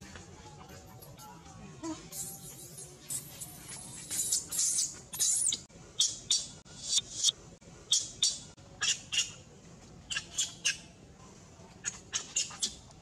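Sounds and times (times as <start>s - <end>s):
baby monkey squealing: 3.8s - 7.3s, 10.1s - 10.8s, 11.8s - 12.8s.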